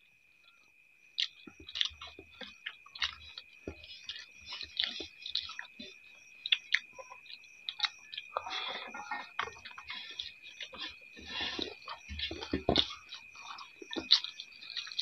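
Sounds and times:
people chewing and lip smacking: 0:00.4 - 0:15.0.

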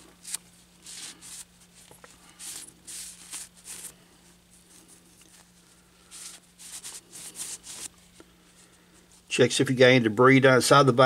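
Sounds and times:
towel wiping metal: 0:00.0 - 0:03.9, 0:06.1 - 0:07.9
faint steady hum: 0:00.0 - 0:11.0.

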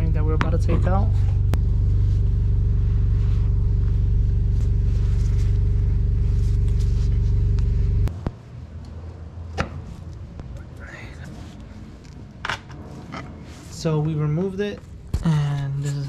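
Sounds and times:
low machine hum: 0:00.0 - 0:08.4.

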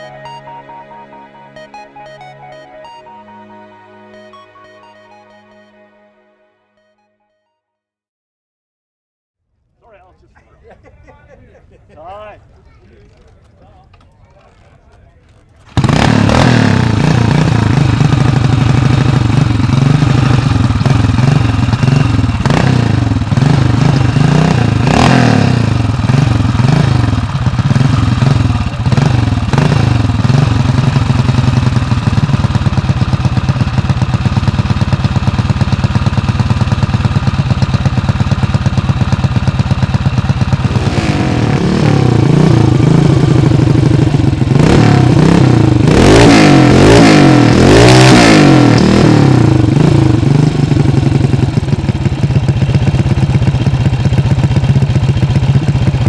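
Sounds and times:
single-cylinder motorcycle engine revving: 0:15.6 - 0:56.0.

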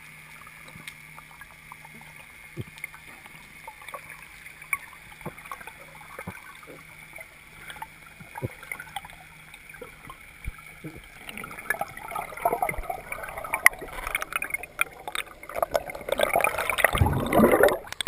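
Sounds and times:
low underwater hum: 0:00.0 - 0:18.0
sharp clicks and crackles: 0:00.6 - 0:02.0, 0:12.7 - 0:18.0.

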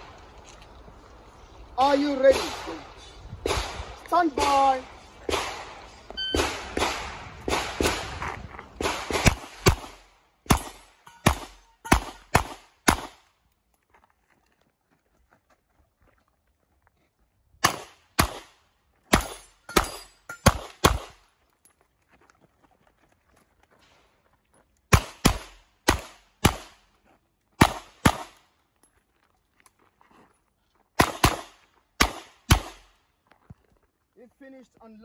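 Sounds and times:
revolver gunshots: 0:02.2 - 0:08.2, 0:08.8 - 0:13.2, 0:31.0 - 0:32.9.

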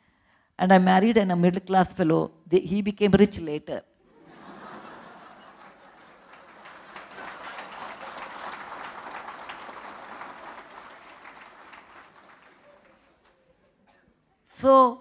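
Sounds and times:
audience laughing: 0:04.1 - 0:14.1
audience applauding: 0:04.2 - 0:14.1.

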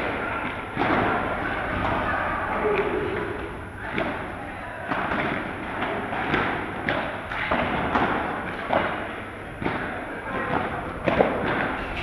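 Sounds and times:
rackets striking ball: 0:00.0 - 0:12.0
ball bouncing: 0:04.9 - 0:09.0, 0:09.6 - 0:11.8.

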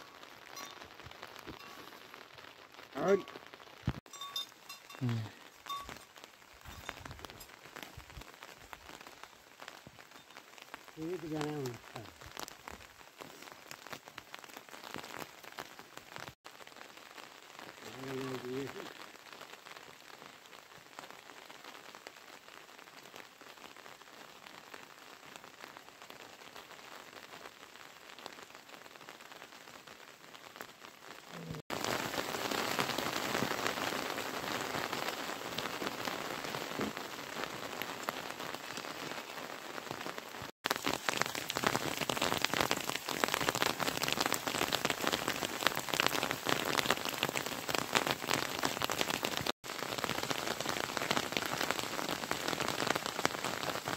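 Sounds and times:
rain falling: 0:00.0 - 0:53.9.

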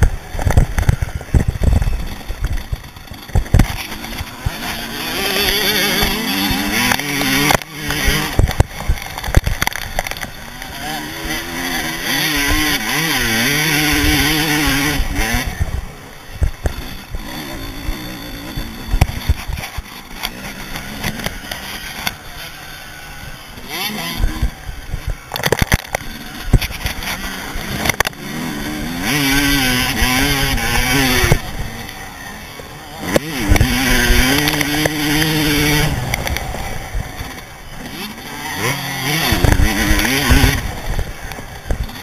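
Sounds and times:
wind rumble: 0:00.0 - 0:04.5
dirt bike engine revving: 0:00.0 - 0:42.0.

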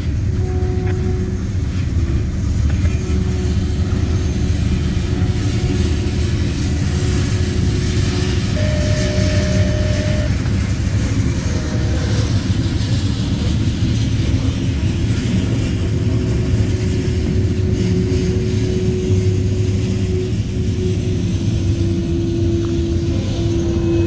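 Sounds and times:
freight train wheels rumbling: 0:00.0 - 0:24.0
faint steady whine: 0:07.2 - 0:11.0.

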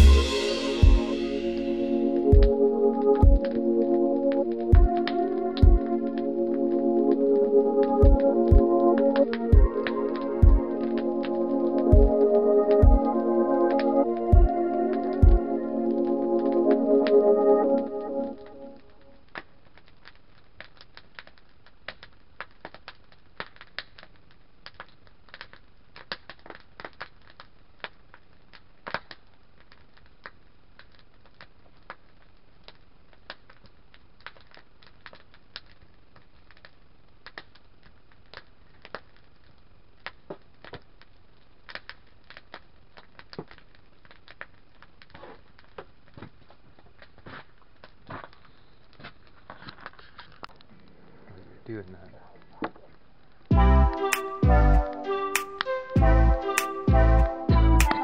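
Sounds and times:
campfire crackling and popping: 0:00.0 - 0:58.0.

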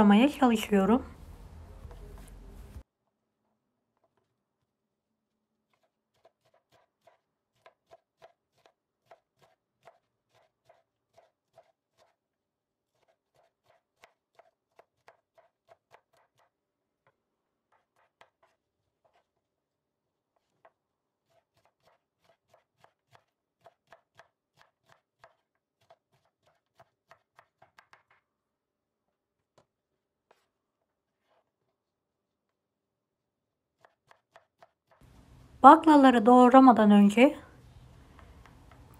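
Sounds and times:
knife chopping on cutting board: 0:21.3 - 0:28.0, 0:33.8 - 0:35.0.

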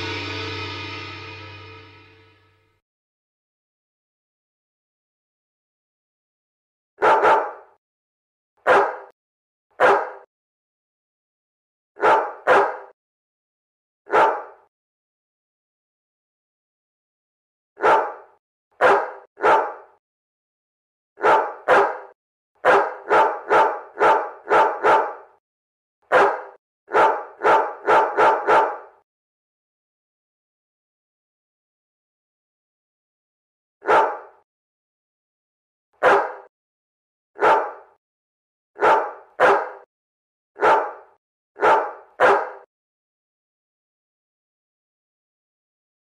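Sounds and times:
cat barking: 0:07.0 - 0:07.6, 0:08.6 - 0:09.1, 0:09.8 - 0:10.2, 0:12.0 - 0:12.9, 0:14.1 - 0:14.5, 0:18.8 - 0:19.8, 0:21.2 - 0:25.2, 0:26.1 - 0:28.8, 0:33.8 - 0:34.2, 0:36.0 - 0:36.5, 0:37.4 - 0:37.8, 0:40.6 - 0:41.0, 0:41.6 - 0:42.6.

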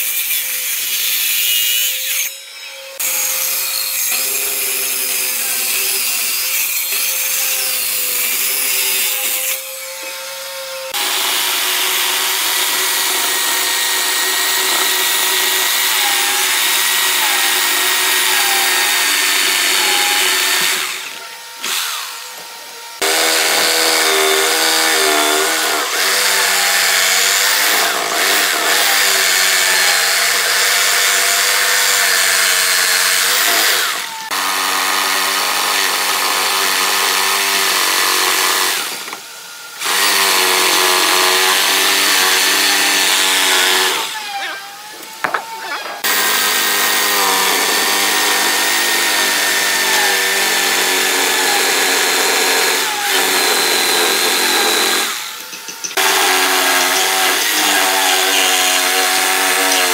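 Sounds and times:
reciprocating saw cutting wood: 0:00.0 - 0:59.9.

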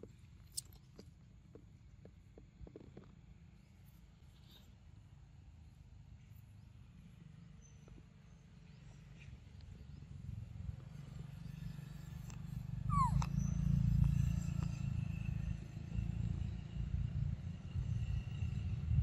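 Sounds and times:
animal squealing: 0:12.9 - 0:14.6.

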